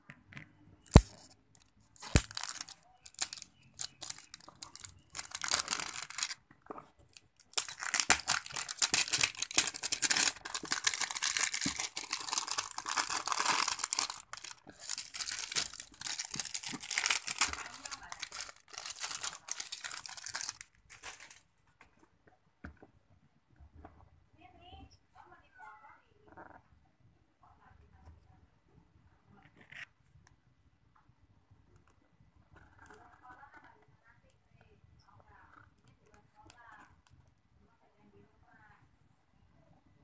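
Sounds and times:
plastic wrap crinkling: 0.8 - 6.4, 7.0 - 21.5.

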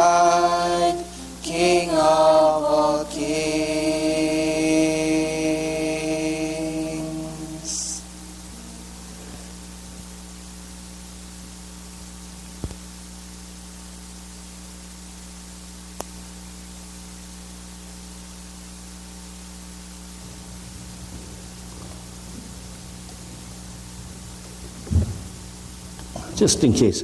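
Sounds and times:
sound system hiss and mains hum: 0.0 - 27.0.

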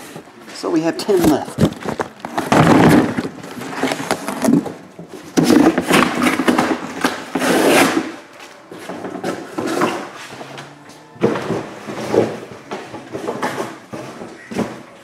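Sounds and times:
scraping and rustling of boxes: 0.0 - 15.0
cardboard boxes knocking: 1.2 - 8.1, 11.2 - 15.0.

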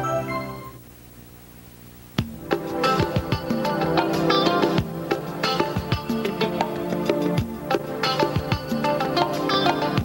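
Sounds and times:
instrumental music with kick drum: 2.2 - 10.0.

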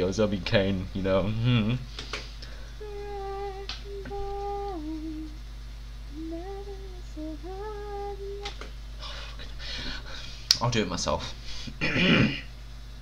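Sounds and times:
steady low background hum: 0.0 - 13.0
woman humming: 1.3 - 1.8, 2.8 - 5.4, 6.1 - 9.2.

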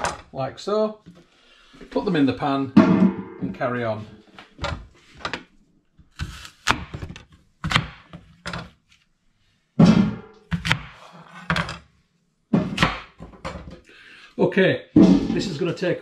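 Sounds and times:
knife chopping on wooden board: 6.2 - 8.3, 10.0 - 11.6.

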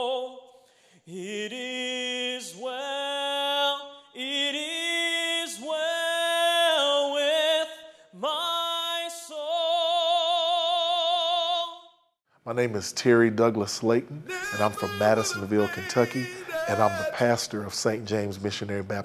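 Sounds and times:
man singing unaccompanied: 14.2 - 17.6.

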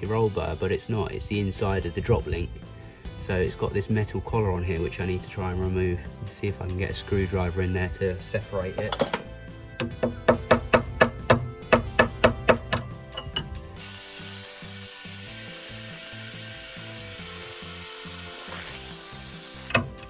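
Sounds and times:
angle grinder cutting steel: 13.8 - 20.0.

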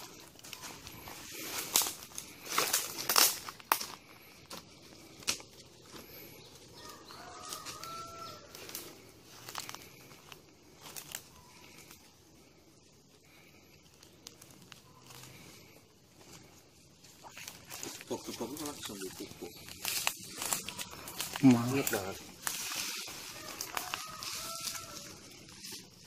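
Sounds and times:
hands scraping loose earth: 16.2 - 26.0.

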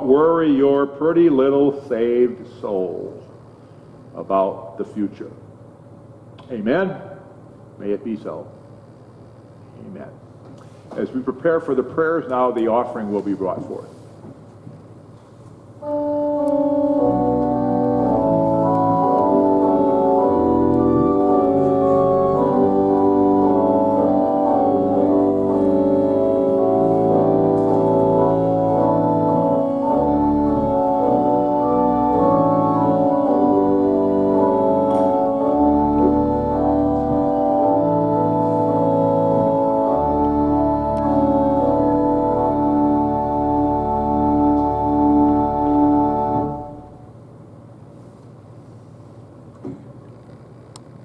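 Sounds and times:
organ playing slow chords: 0.0 - 5.3, 15.7 - 47.3.

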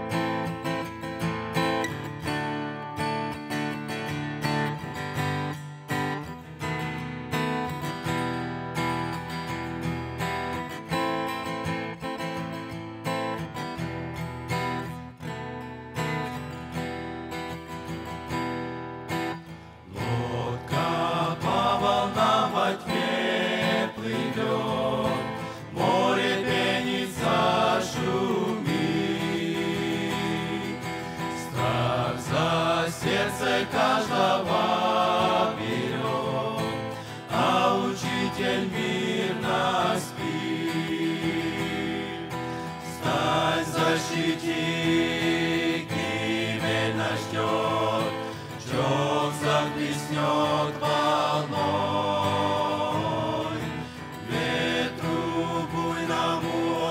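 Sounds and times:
strummed acoustic guitar: 0.0 - 56.9
men's group singing a hymn: 19.9 - 56.9.

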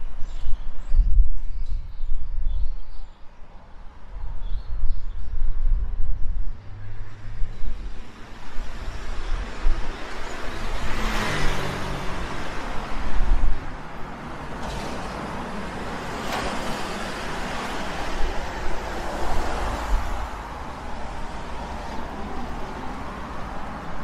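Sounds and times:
road traffic rushing past: 6.3 - 24.0
passing vehicle engine hum: 6.4 - 24.0.

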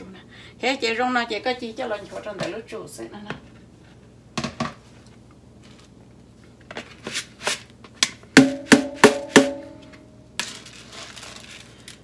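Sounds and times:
rice rustling: 10.4 - 12.0.

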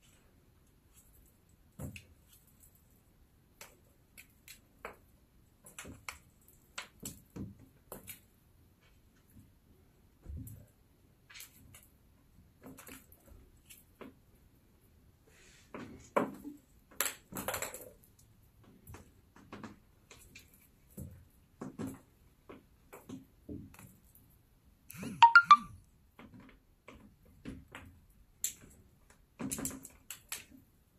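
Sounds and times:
bright ringing pings: 25.2 - 25.7.

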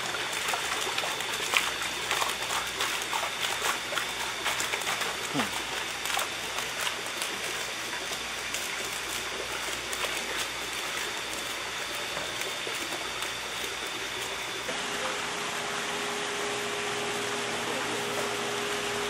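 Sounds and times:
water splashing and dripping: 0.0 - 14.7.

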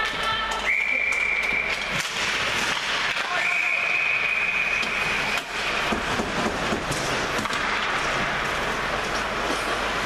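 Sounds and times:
referee's whistle blast: 3.3 - 4.9.

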